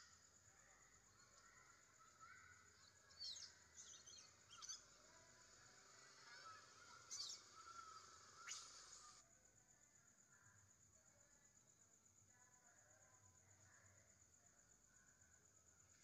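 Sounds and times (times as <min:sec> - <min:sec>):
steady high hiss: 0:04.2 - 0:09.2.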